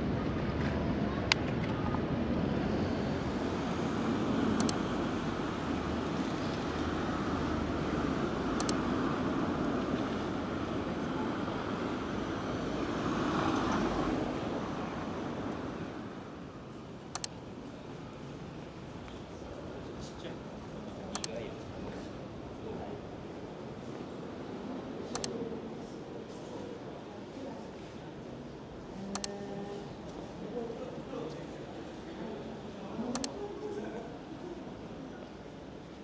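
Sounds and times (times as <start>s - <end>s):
wind and road noise: 0.0s - 27.0s
sharp double clicks: 4.6s - 4.8s, 8.6s - 8.8s, 17.2s - 17.4s, 21.2s - 21.4s, 25.2s - 25.4s, 29.2s - 29.4s, 33.1s - 33.4s.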